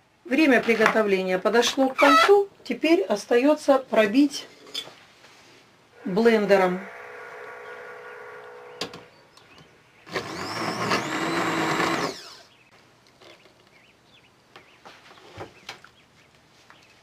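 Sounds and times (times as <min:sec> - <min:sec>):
immersion blender motor whining: 0:06.0 - 0:09.1, 0:10.1 - 0:12.5.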